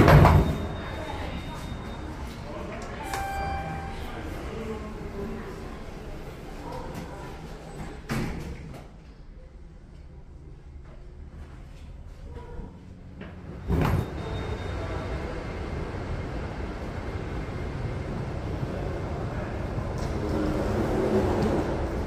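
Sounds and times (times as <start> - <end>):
elevator doors clunk: 0.0 - 1.9, 2.8 - 4.5
faint voices: 0.6 - 8.1.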